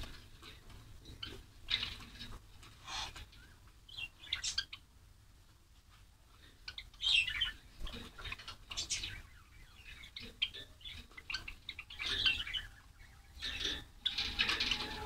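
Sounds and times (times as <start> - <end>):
sparrows chirping: 0.0 - 4.9, 6.4 - 15.0
wing flutters: 13.4 - 15.0.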